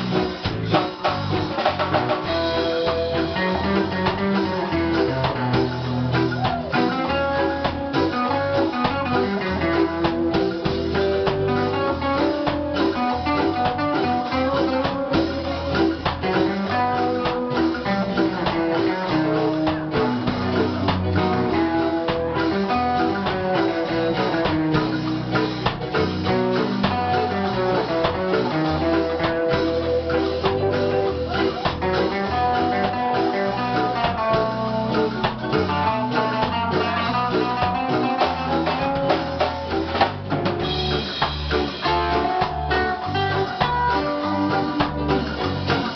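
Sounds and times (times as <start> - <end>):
drum kit: 0.0 - 45.9
electric guitars: 0.0 - 45.9
keyboard: 0.0 - 45.9
reggae band playing live: 0.0 - 45.9.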